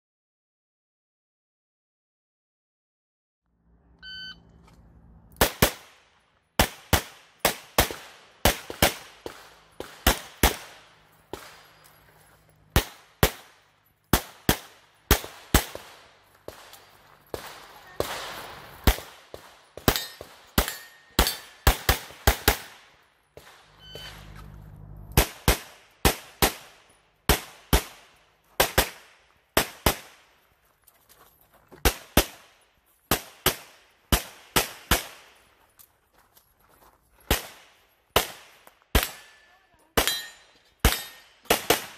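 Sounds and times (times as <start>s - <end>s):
shot timer beep: 4.0s - 4.5s, 23.8s - 24.4s
pistol shots: 5.4s - 11.9s, 12.7s - 23.8s, 25.1s - 30.3s, 38.2s - 39.4s, 40.0s - 41.9s.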